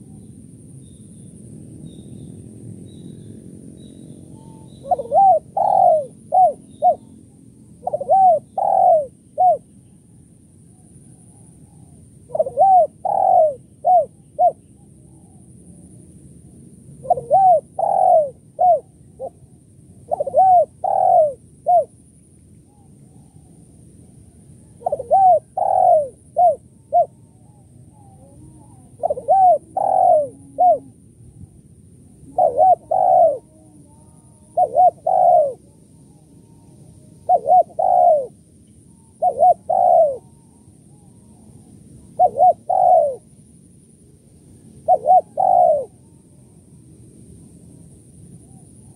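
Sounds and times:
dove cooing: 4.3s - 9.7s, 11.1s - 15.4s, 17.0s - 21.9s, 24.6s - 31.5s, 32.2s - 43.3s, 44.8s - 46.2s.

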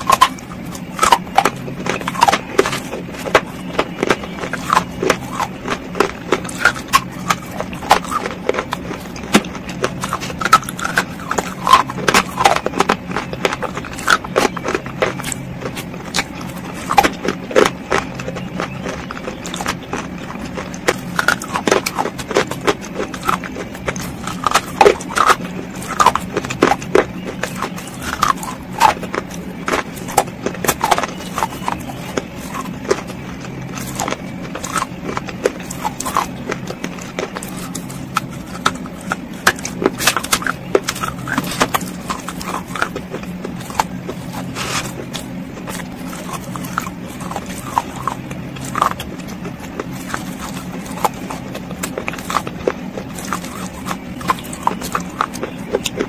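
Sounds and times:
crunching and chewing clay: 0.0s - 56.0s
low hum: 0.0s - 56.0s.

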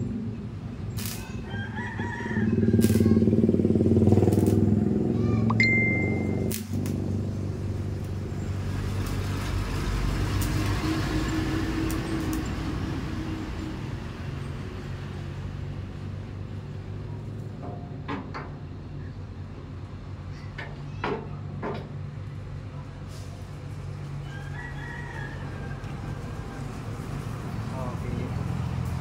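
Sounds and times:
motorcycle engine running: 2.3s - 9.1s.

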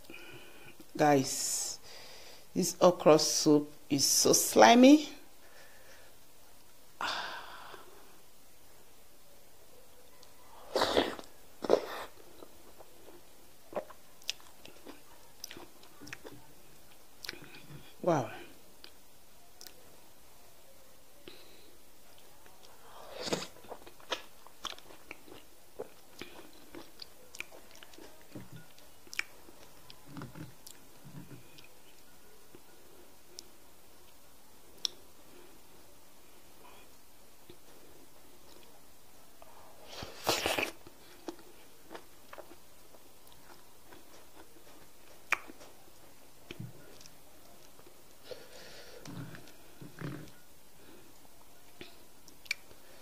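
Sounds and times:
mouth sound eating: 10.2s - 18.0s, 39.9s - 42.6s
wet chewing mouth sounds: 10.8s - 17.9s, 23.2s - 32.1s, 40.1s - 47.9s
mouth clicks: 45.3s - 45.6s.

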